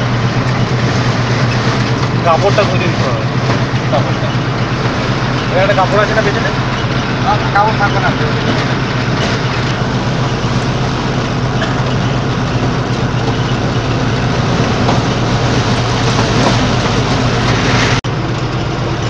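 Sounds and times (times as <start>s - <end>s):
road noise: 0.0s - 19.0s
vehicle engine drone: 0.0s - 19.0s.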